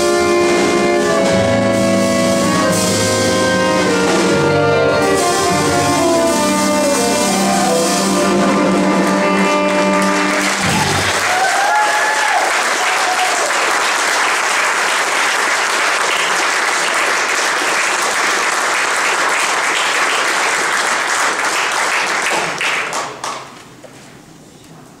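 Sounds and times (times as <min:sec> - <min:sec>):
audience applauding: 0:09.0 - 0:23.6.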